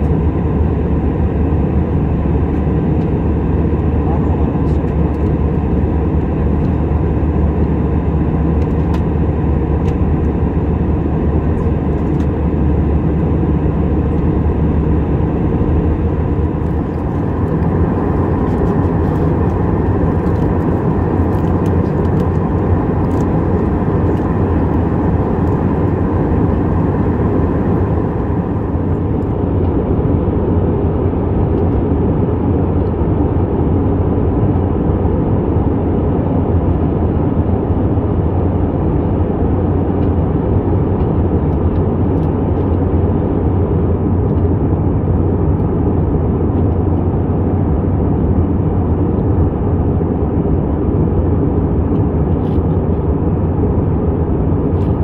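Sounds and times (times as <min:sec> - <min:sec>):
faint steady hum: 0:00.0 - 0:29.4
airflow over fuselage: 0:00.0 - 0:30.0
jet engines low rumble: 0:00.0 - 0:55.0.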